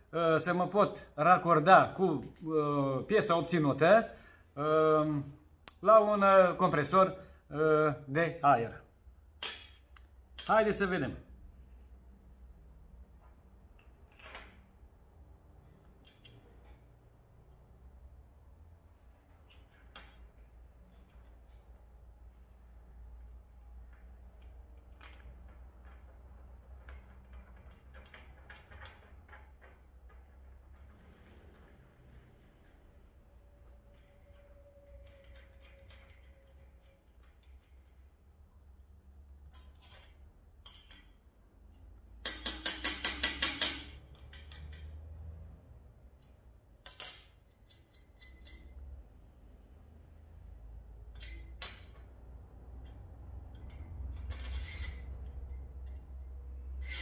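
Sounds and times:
metal parts clicking on bench: 0:09.3 - 0:10.8, 0:13.0 - 0:18.1, 0:18.9 - 0:45.0, 0:46.1 - 0:48.9, 0:50.9 - 0:57.0
metal tools clinking on steel: 0:09.3 - 0:11.9, 0:15.6 - 0:18.1, 0:18.9 - 0:38.4, 0:39.2 - 0:45.2, 0:46.2 - 0:49.2, 0:50.9 - 0:57.0.

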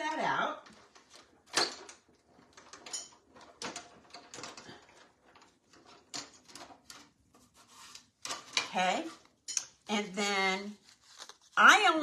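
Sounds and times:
plastic rubbing: 0:00.6 - 0:09.4, 0:10.4 - 0:12.0.

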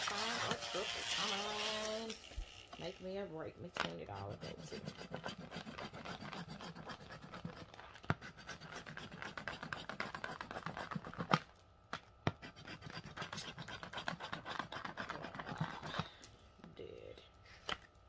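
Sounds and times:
coin scratching lottery ticket: 0:00.0 - 0:02.2, 0:03.9 - 0:11.3, 0:12.4 - 0:16.0.

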